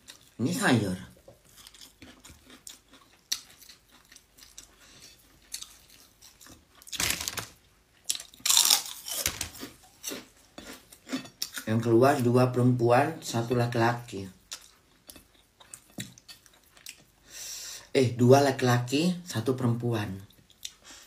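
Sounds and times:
person chewing food: 0:00.0 - 0:00.4, 0:01.1 - 0:11.8, 0:14.3 - 0:17.3, 0:20.3 - 0:21.0.

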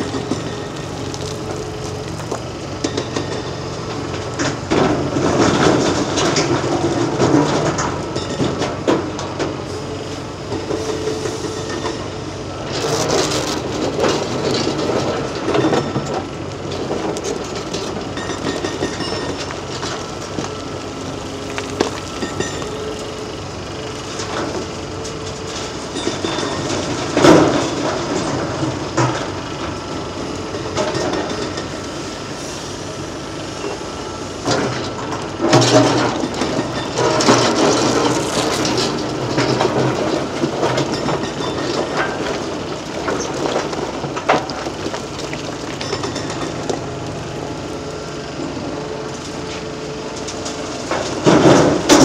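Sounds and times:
excavator engine and hydraulics: 0:00.0 - 0:52.0
clattering rock: 0:34.5 - 0:47.1, 0:50.3 - 0:52.0.

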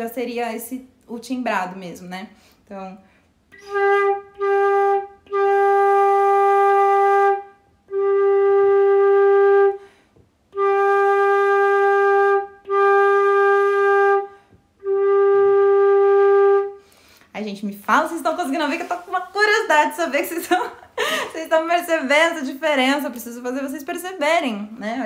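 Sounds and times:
flute playing long tones: 0:03.5 - 0:09.8, 0:10.5 - 0:16.8
breath between flute notes: 0:16.8 - 0:17.3.

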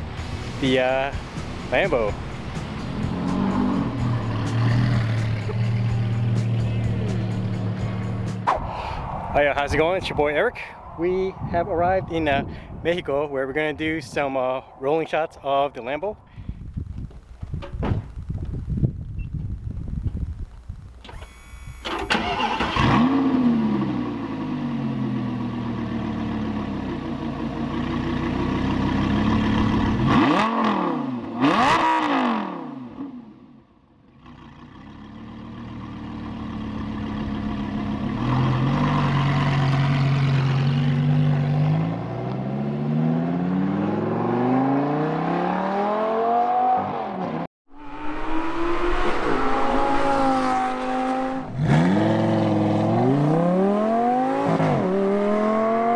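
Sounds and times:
sports car engine revving: 0:02.4 - 0:06.0, 0:27.8 - 0:33.1, 0:36.8 - 0:55.9.

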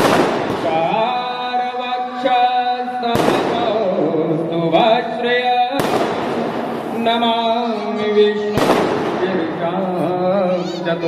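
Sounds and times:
firework bangs: 0:00.0 - 0:01.2, 0:03.0 - 0:04.1, 0:05.2 - 0:09.8.

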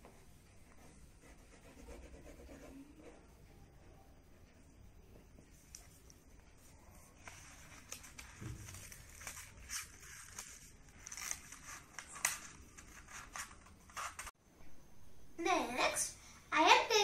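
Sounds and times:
paper rustling and crackling: 0:05.6 - 0:14.3.

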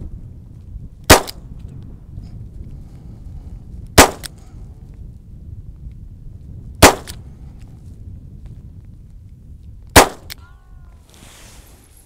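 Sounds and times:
pistol shot: 0:01.1 - 0:01.4, 0:04.0 - 0:04.3, 0:06.8 - 0:07.2, 0:09.9 - 0:10.3.

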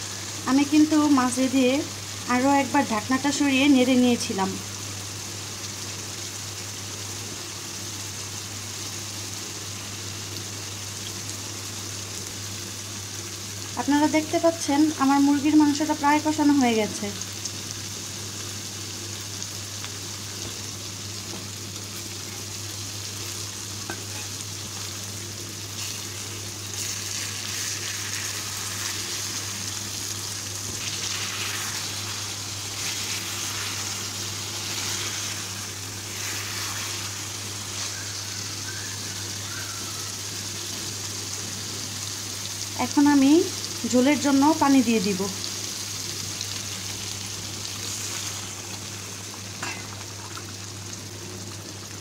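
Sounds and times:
chicken sizzling in a frying pan: 0:00.0 - 0:52.0
spatula scraping through meat: 0:23.9 - 0:24.4, 0:30.7 - 0:38.0.

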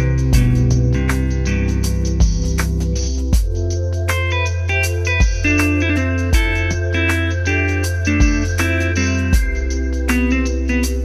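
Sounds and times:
plucked guitar: 0:00.0 - 0:03.0, 0:04.1 - 0:11.0
deep bass line: 0:00.0 - 0:11.0
low beat: 0:00.0 - 0:11.0.

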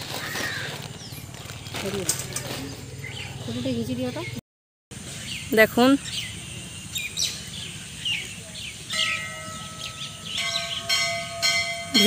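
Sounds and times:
small birds chirping: 0:00.0 - 0:04.4, 0:05.0 - 0:11.3
temple bell ringing: 0:08.9 - 0:12.0.

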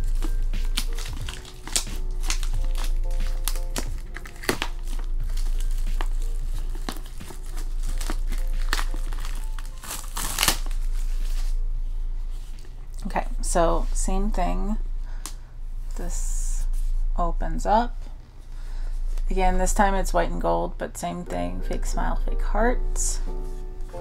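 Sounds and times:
plastic shrink wrap crinkling: 0:00.0 - 0:11.6
background music with held notes: 0:00.0 - 0:12.8, 0:20.0 - 0:24.0.

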